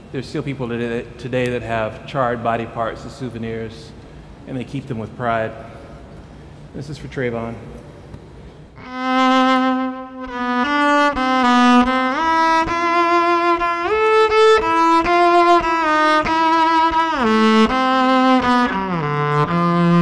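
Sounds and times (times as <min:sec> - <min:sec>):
bowed cello melody: 0:08.8 - 0:20.0.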